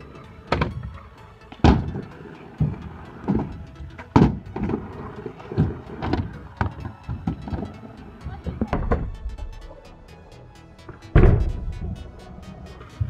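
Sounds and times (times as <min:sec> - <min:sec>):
scooter wheels and decks clacking: 0:00.0 - 0:09.2.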